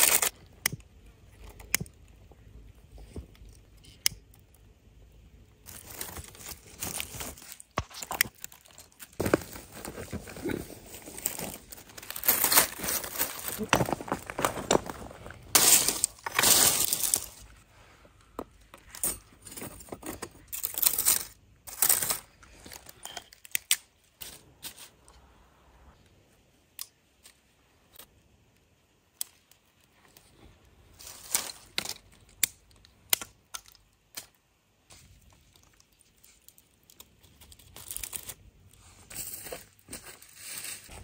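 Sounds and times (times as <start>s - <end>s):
crinkling and rustling: 5.6s - 25.0s, 29.2s - 32.9s, 33.5s - 41.0s
objects clinking and knocking: 8.6s - 17.4s.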